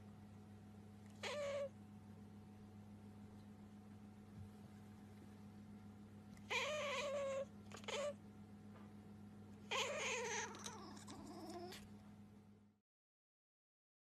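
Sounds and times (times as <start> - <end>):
faint steady hum: 0.0 - 12.8
cat meowing: 1.2 - 1.7, 6.5 - 8.2, 9.7 - 11.8.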